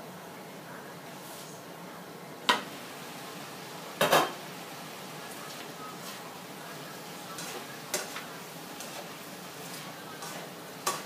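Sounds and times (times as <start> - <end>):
spatula tapping in pan: 7.4 - 8.2, 10.2 - 11.0.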